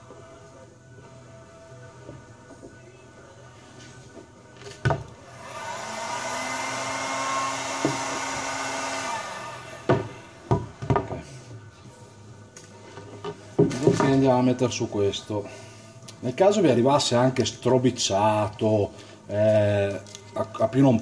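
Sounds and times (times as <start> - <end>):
heat gun blowing: 5.2 - 10.3.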